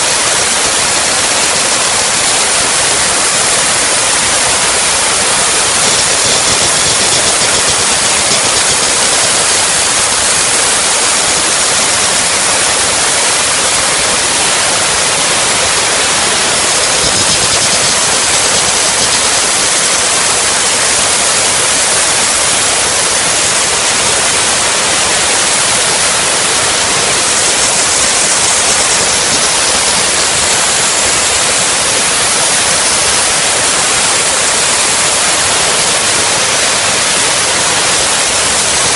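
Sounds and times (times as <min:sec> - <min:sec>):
steam jet hissing: 0:00.0 - 0:38.9.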